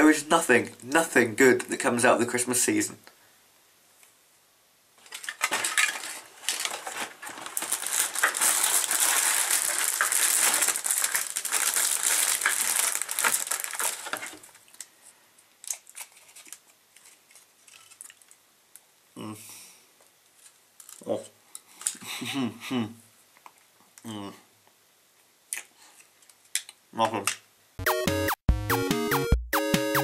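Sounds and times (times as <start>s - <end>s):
food packaging crinkling: 5.0s - 15.0s, 15.6s - 18.4s, 20.4s - 21.1s.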